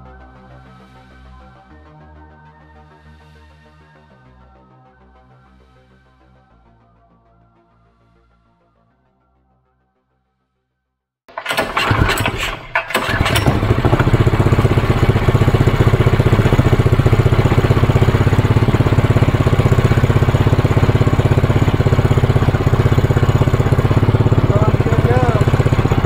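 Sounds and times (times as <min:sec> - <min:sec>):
small engine starting and running: 0:11.3 - 0:26.0.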